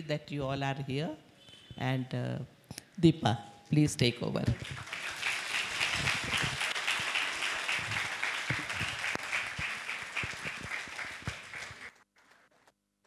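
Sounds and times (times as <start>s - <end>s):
audience applauding: 4.6s - 12.5s.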